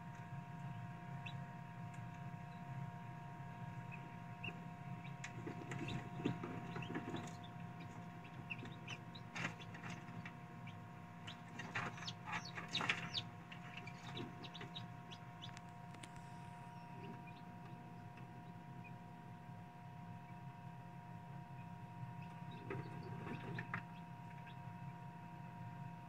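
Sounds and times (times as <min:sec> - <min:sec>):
incubator humming: 0:00.0 - 0:26.0
chicks peeping: 0:00.6 - 0:01.4, 0:03.7 - 0:19.0, 0:21.6 - 0:24.6.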